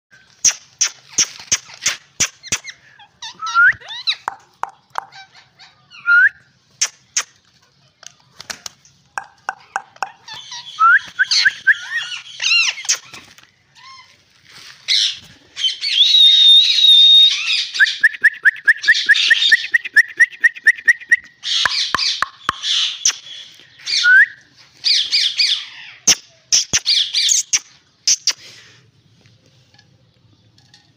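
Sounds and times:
parakeets screeching and chattering: 9.3s - 14.1s, 14.9s - 17.8s, 21.4s - 24.0s, 24.8s - 28.3s.

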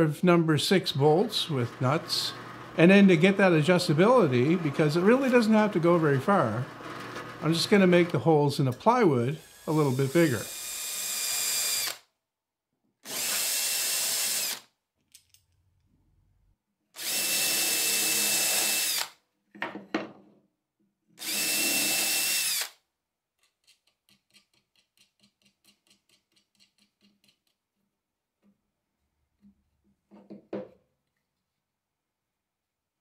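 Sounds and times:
cordless drill whining: 4.2s - 7.7s, 9.4s - 12.0s, 13.0s - 14.7s, 17.0s - 19.2s, 21.2s - 22.8s
nuts threaded by hand ticking: 23.4s - 27.7s.

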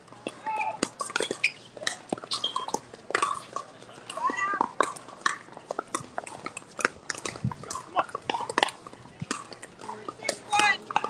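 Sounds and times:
sneakers squeaking: 0.3s - 3.6s.

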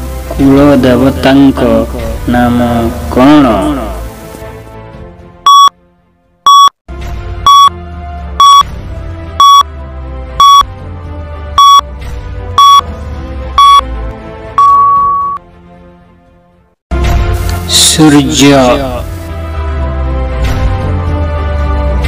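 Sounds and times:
background music: 0.0s - 22.0s
countdown timer beeping: 5.5s - 5.7s, 6.5s - 6.7s, 7.5s - 7.7s, 8.4s - 8.7s, 9.4s - 9.7s, 10.4s - 10.7s, 11.6s - 11.8s, 12.6s - 12.8s, 13.6s - 13.8s, 14.6s - 15.4s.

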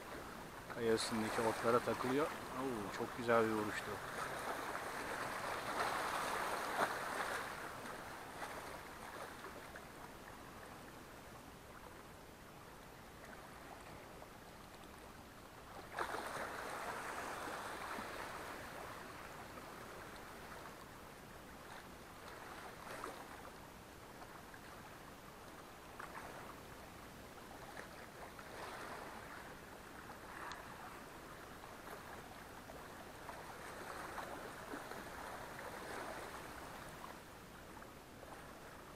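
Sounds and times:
waves lapping against rocks: 0.0s - 11.0s, 13.1s - 20.9s, 21.6s - 23.5s, 27.3s - 38.9s
faint clicks: 30.4s - 30.6s.

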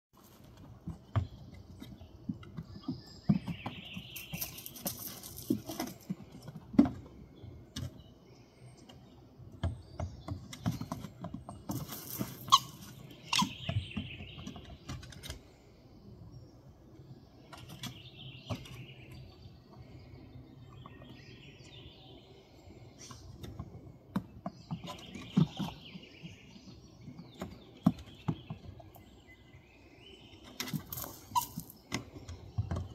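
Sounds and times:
paws scuffling on wood: 0.2s - 7.2s, 10.3s - 15.2s
birds chirping: 0.2s - 32.9s.

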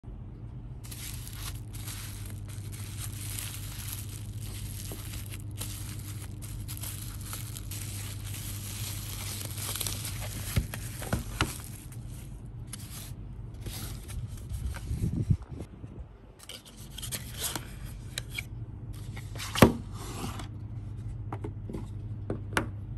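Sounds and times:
steady low hum: 0.0s - 22.9s
bubble wrap crackly rustle: 0.8s - 15.1s.

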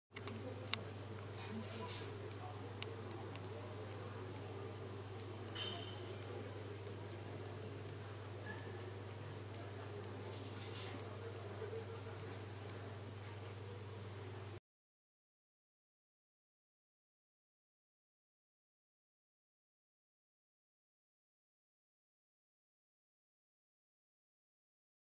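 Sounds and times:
steady low hum: 0.1s - 14.6s.

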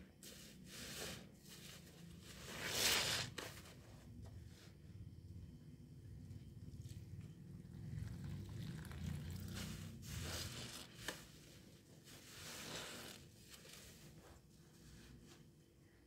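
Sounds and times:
wet sponges squishing: 8.1s - 11.4s.

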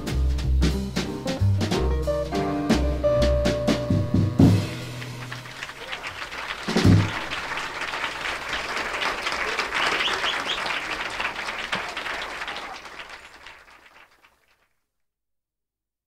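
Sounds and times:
audience applauding: 4.5s - 14.7s.

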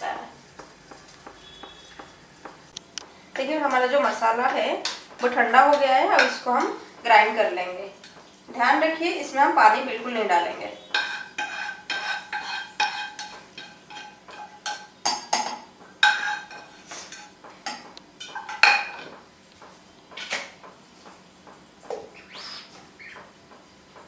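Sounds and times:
spatula scraping frying pan: 10.8s - 15.4s, 16.0s - 19.0s.

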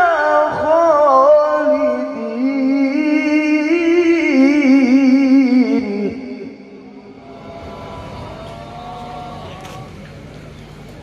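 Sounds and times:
man reciting melodically into microphone: 0.0s - 7.0s.

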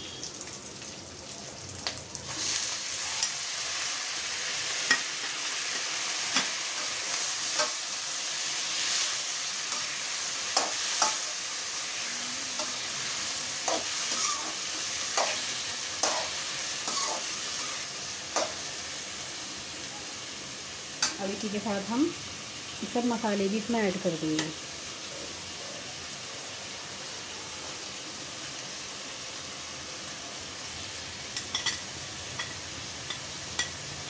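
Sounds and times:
vegetables sizzling in oil: 0.0s - 34.0s
metal spoon scraping pan: 13.7s - 17.8s.

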